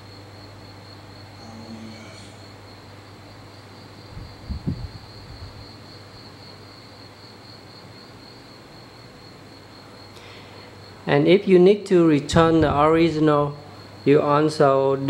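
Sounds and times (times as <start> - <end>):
high-pitched chirring drone: 1.2 - 2.6.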